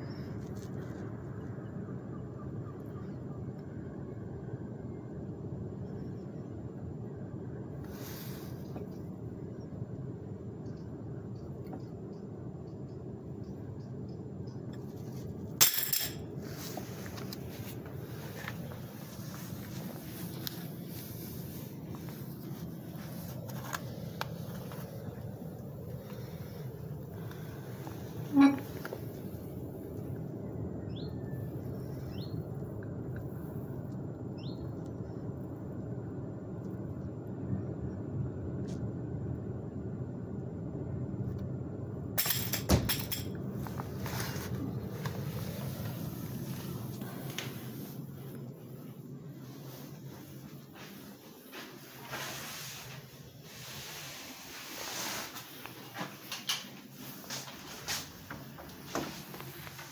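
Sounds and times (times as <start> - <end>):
low background noise: 0.0 - 59.9
steady low rumble: 0.0 - 59.9
metal tubes clinking and rattling: 15.6 - 16.3, 42.2 - 43.4
bird chirping: 30.9 - 32.4.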